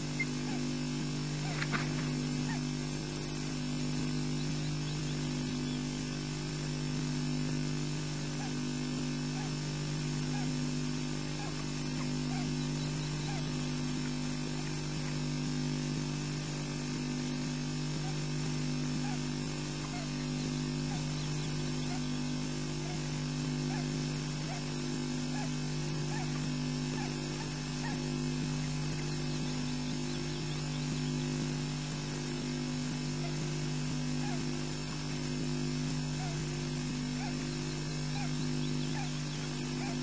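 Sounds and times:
electrical hum: 0:00.0 - 0:40.0.

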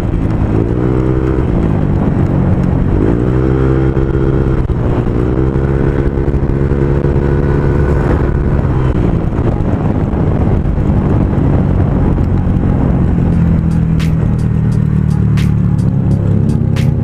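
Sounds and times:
scooter engine running: 0:00.0 - 0:17.0.

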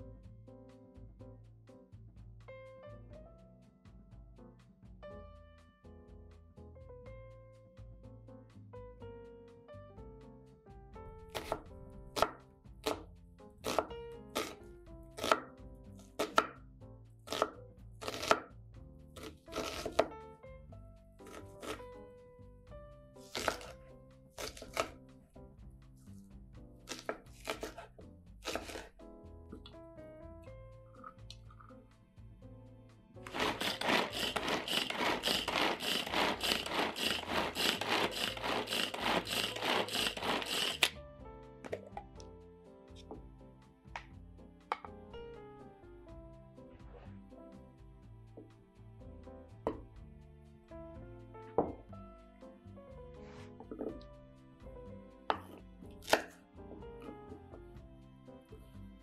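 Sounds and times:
knife slicing onto wooden board: 0:11.4 - 0:11.6, 0:12.2 - 0:14.6, 0:15.2 - 0:15.5, 0:16.1 - 0:16.5, 0:17.3 - 0:18.4, 0:19.2 - 0:20.1, 0:21.2 - 0:21.8, 0:23.2 - 0:23.8, 0:24.4 - 0:25.0, 0:26.9 - 0:29.0, 0:33.3 - 0:40.9, 0:55.3 - 0:56.4.

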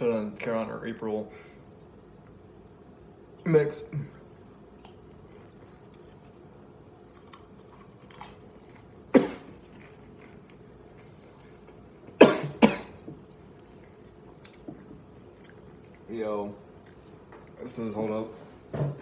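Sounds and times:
man coughing: 0:03.8 - 0:04.2, 0:09.1 - 0:09.5, 0:12.2 - 0:13.0.

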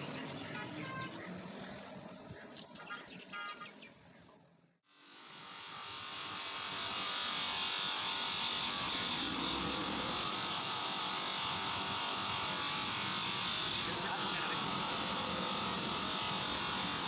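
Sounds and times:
bench grinder motor whirring: 0:05.0 - 0:17.0.

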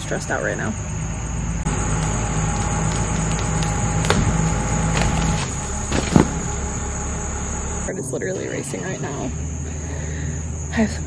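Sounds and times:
insects buzzing: 0:00.0 - 0:11.0
truck engine under load: 0:00.0 - 0:11.0
loud thump: 0:02.9 - 0:06.7.

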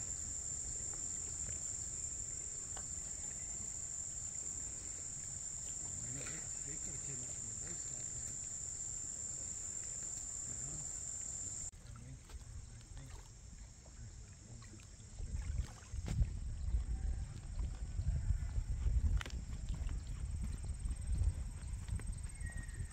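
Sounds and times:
high-pitched insect chorus: 0:00.0 - 0:11.7
wind rumble on microphone: 0:15.1 - 0:22.9.

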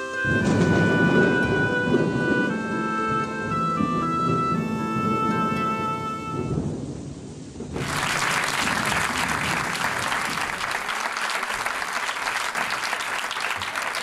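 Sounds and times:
music: 0:00.0 - 0:06.8
audience applause: 0:07.7 - 0:14.0.

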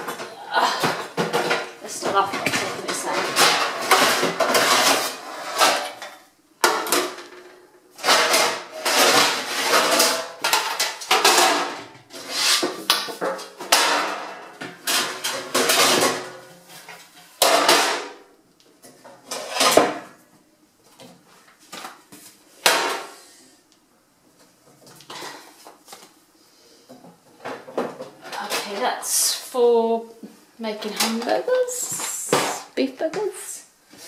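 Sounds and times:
metal baking trays clattering: 0:00.0 - 0:18.3, 0:18.9 - 0:20.2, 0:22.6 - 0:23.2, 0:27.4 - 0:29.3, 0:30.7 - 0:33.5.

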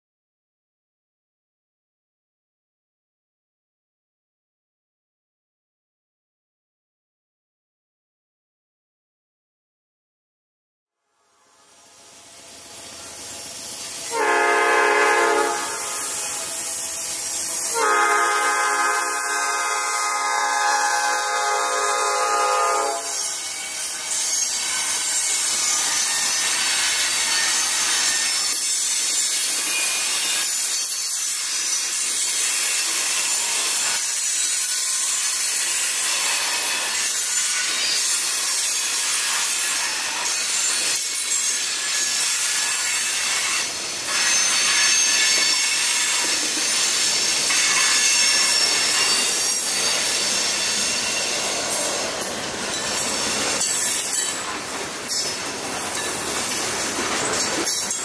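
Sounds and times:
train wheels rushing on rail: 0:11.6 - 0:58.0
faint high wheel squeal: 0:46.6 - 0:52.0.

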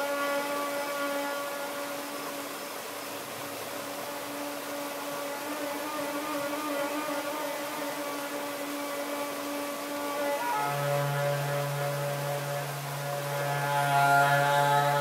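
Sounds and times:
saxophone long note: 0:00.0 - 0:02.5, 0:03.5 - 0:15.0
stream rapids rushing: 0:00.0 - 0:15.0.

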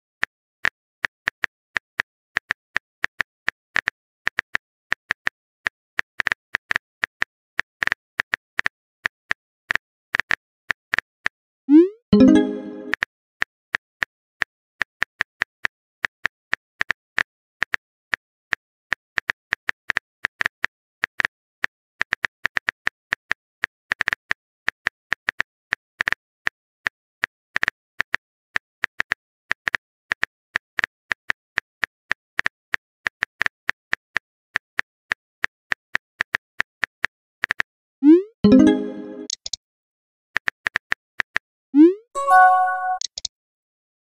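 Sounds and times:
phone keyboard typing clicks: 0:38.5 - 0:39.6, 0:42.2 - 0:43.3.

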